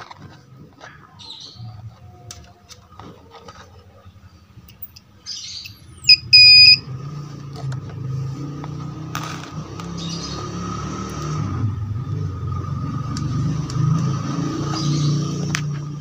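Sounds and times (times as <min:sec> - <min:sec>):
multimeter beeping: 0:06.0 - 0:06.8.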